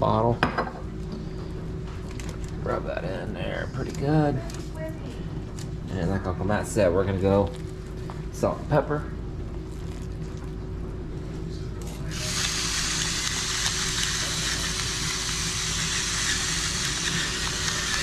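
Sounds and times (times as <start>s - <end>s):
electric grinder whirring: 12.1s - 18.0s.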